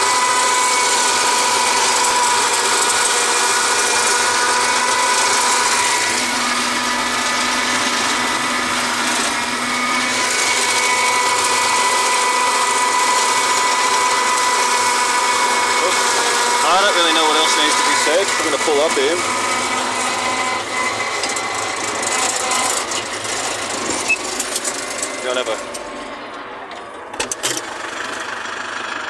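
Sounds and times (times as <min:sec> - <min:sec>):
steady machine whine: 0:00.0 - 0:29.0
tractor and flail mower running: 0:00.0 - 0:29.0.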